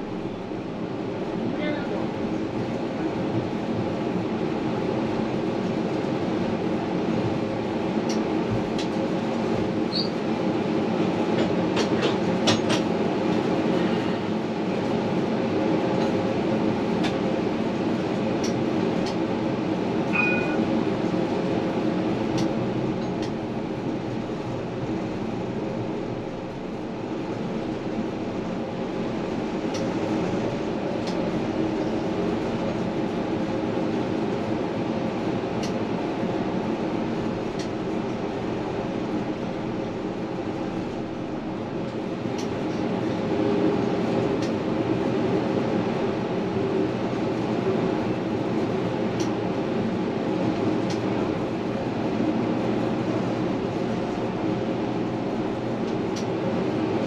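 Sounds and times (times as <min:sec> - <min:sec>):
tram motors and wheels humming: 0:00.0 - 0:57.0.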